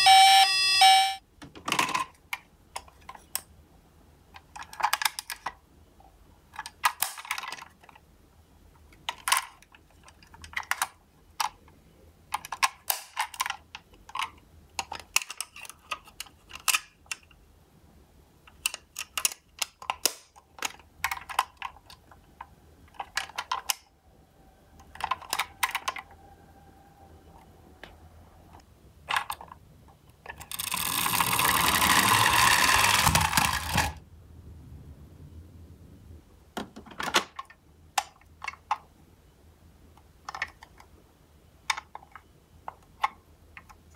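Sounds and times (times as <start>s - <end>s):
toy doors clicking shut: 0.0s - 3.5s, 4.4s - 5.6s, 6.5s - 8.0s, 9.0s - 11.6s, 12.3s - 17.3s, 18.5s - 24.0s, 24.7s - 26.2s, 27.3s - 29.6s, 30.2s - 34.0s, 36.6s - 38.8s
toy wheels rolling on wood: 30.3s - 34.0s.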